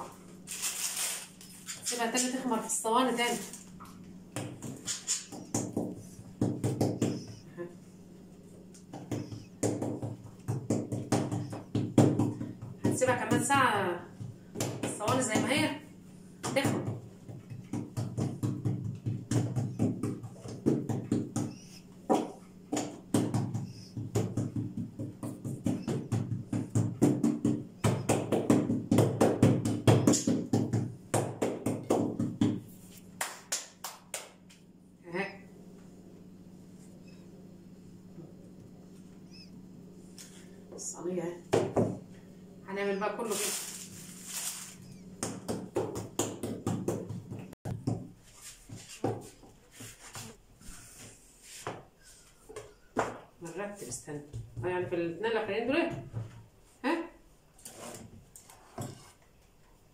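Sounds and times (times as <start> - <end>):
hands patting dough: 3.2 - 7.6, 8.5 - 15.8, 16.4 - 34.6, 43.2 - 54.8
dough pressed on wooden board: 16.4 - 32.7.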